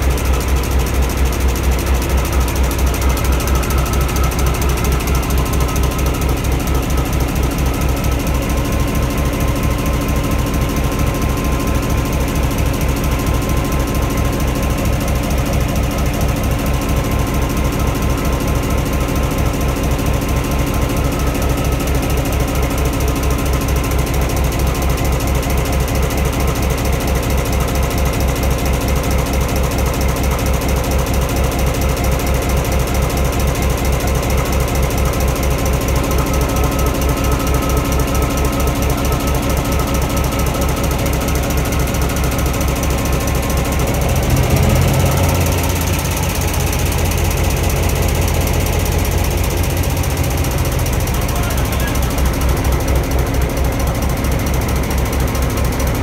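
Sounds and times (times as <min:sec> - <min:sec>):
diesel engine idling: 0:00.0 - 0:56.0
deep hum: 0:43.4 - 0:50.0.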